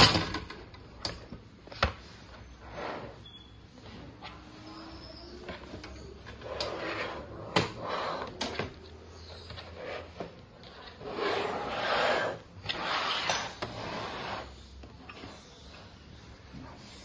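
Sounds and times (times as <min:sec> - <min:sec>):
metal tray sliding scrapes: 0:02.6 - 0:03.3, 0:06.4 - 0:08.4, 0:11.0 - 0:14.6.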